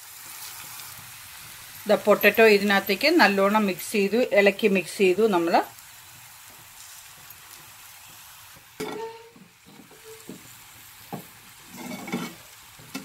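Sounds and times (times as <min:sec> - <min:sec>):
faint oil sizzle: 0:00.0 - 0:13.0
metallic pan ring: 0:08.8 - 0:10.3
metal spatula scraping pan: 0:08.8 - 0:10.5, 0:11.6 - 0:13.0.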